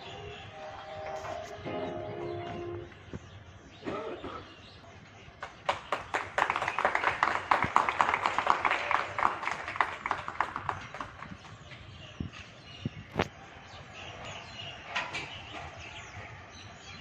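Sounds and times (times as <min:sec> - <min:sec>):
crowd clapping: 0:05.4 - 0:11.8.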